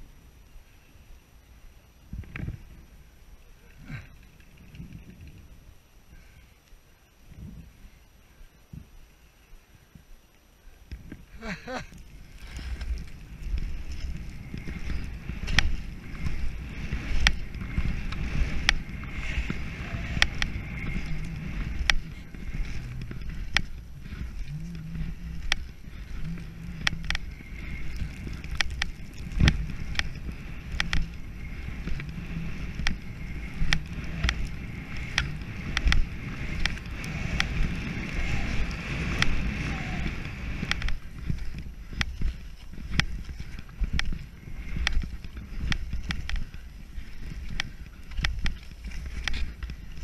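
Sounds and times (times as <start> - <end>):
skis scraping on snow: 11.0 - 50.0.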